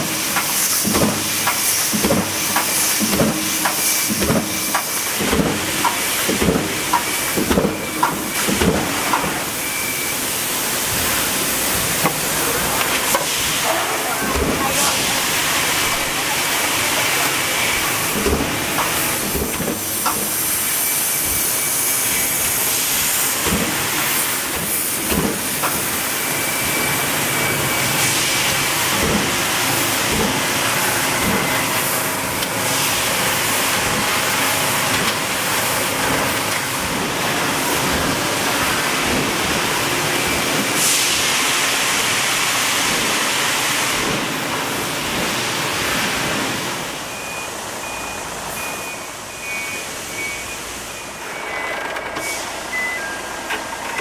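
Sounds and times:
machinery clacks and knocks: 0.0s - 9.5s, 14.3s - 15.1s, 17.2s - 20.6s, 23.2s - 26.0s, 28.4s - 32.6s
factory machinery hiss: 0.0s - 53.9s
forklift reversing alarm beeps: 6.9s - 12.0s, 19.9s - 28.9s, 30.7s - 32.7s, 39.8s - 40.8s, 46.9s - 54.0s.

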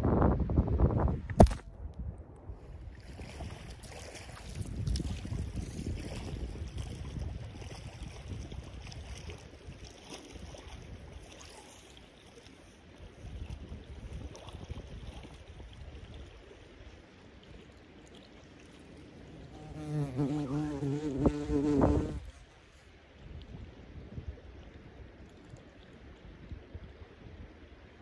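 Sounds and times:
wind buffeting microphone: 0.0s - 9.8s, 19.4s - 22.5s
fly buzzing: 19.4s - 22.3s.

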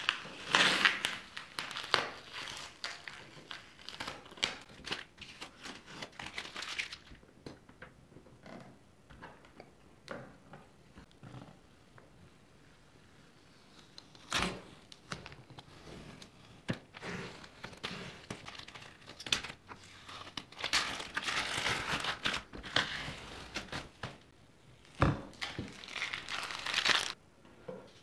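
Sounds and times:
masking tape peeling and crumpling: 25.3s - 27.2s.

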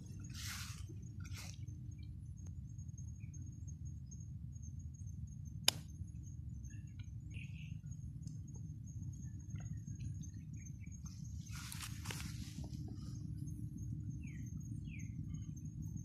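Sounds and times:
rustling of leaves and mud: 0.0s - 1.9s, 11.1s - 13.2s
high insect tone: 0.0s - 16.0s
low steady rumble: 0.0s - 16.0s.

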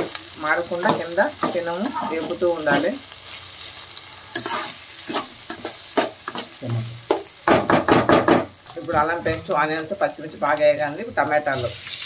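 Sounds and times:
oil sizzling: 0.0s - 12.0s
metal spatula scraping pan: 4.3s - 6.9s.

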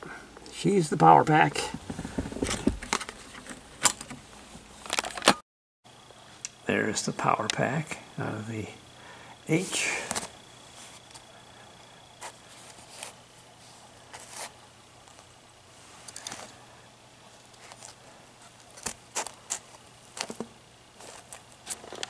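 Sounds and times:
faint steady low hum: 5.9s - 22.0s.

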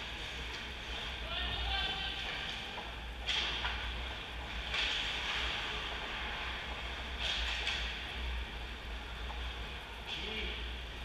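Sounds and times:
skates scraping on ice: 0.0s - 8.0s
low steady hum: 0.0s - 11.0s.

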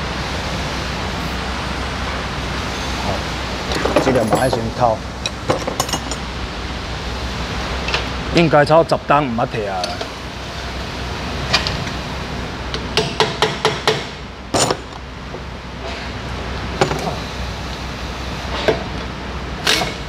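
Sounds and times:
low steady hum: 0.0s - 13.3s.

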